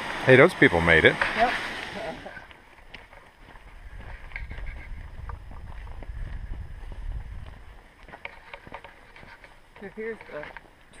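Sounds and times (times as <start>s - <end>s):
wind buffeting microphone: 3.4s - 8.2s.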